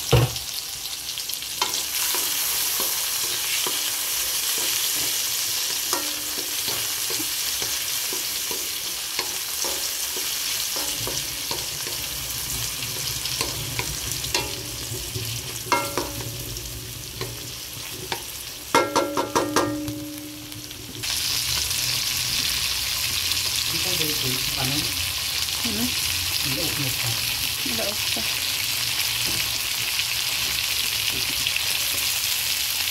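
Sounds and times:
vegetables sizzling in hot oil: 0.0 - 32.9
wooden spatula scraping a wok: 1.6 - 18.4.

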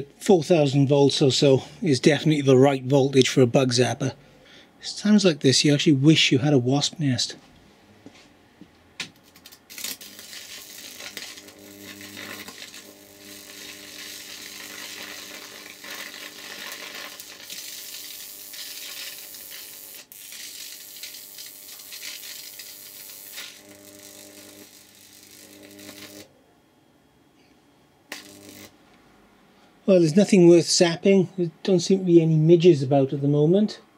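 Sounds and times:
electric arc sizzling crackle: 9.1 - 26.3, 28.1 - 28.8.

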